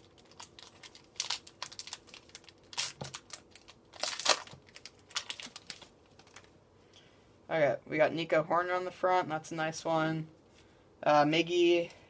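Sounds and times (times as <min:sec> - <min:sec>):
wrapper tearing and crinkling: 0:00.0 - 0:06.5.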